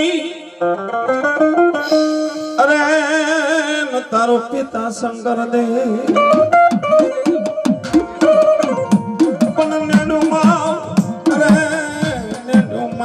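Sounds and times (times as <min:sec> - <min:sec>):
man singing into microphone: 0:00.0 - 0:00.6, 0:02.4 - 0:13.0
held melodic notes: 0:00.9 - 0:03.5, 0:06.2 - 0:13.0
folk drum beaten in quick rhythm: 0:05.9 - 0:13.0.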